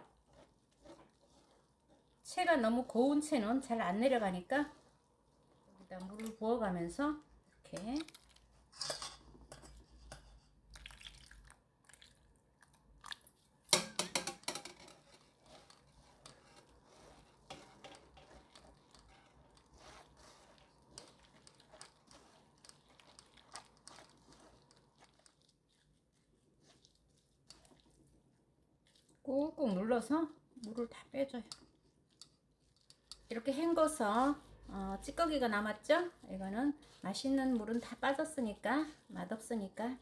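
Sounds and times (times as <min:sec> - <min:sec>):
wet pulp squishing through strainer: 0:00.0 - 0:08.7, 0:10.6 - 0:14.1, 0:15.0 - 0:40.0
water pouring and splashing: 0:10.7 - 0:14.1.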